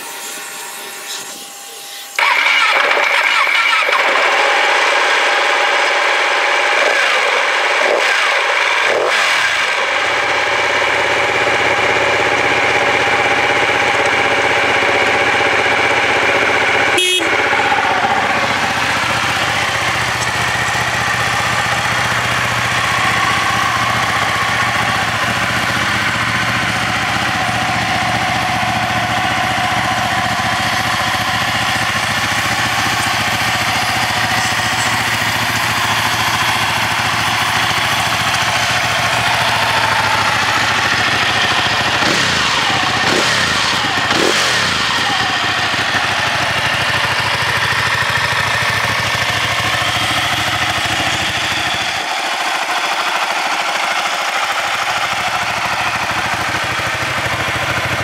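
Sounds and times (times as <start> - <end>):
motorcycle engine idling: 1.9 - 58.0.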